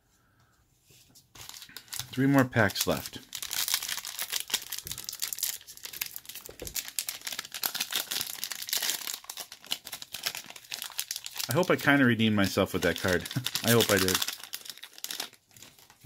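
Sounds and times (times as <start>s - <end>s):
foil wrapper crinkling: 1.4s - 16.0s.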